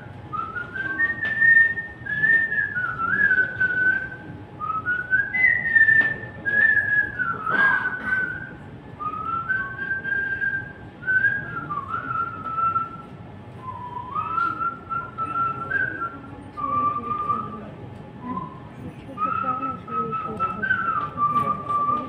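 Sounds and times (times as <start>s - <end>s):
man whistling a melody: 0.3s - 22.0s.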